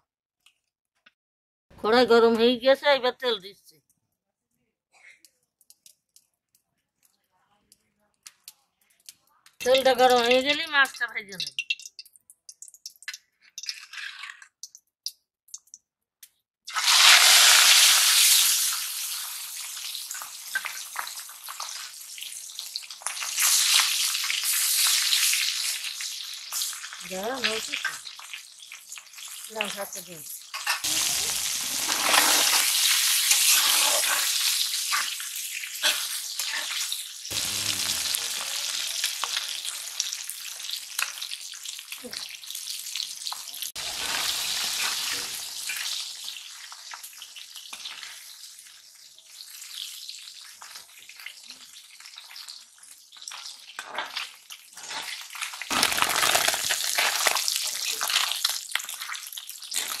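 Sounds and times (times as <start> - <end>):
fish sizzling in hot oil: 16.7 - 60.0.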